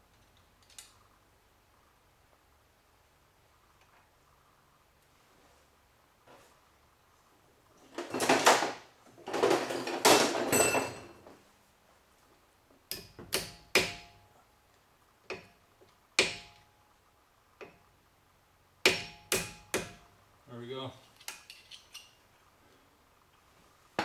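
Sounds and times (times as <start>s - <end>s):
metal clinks: 10.5s - 11.2s.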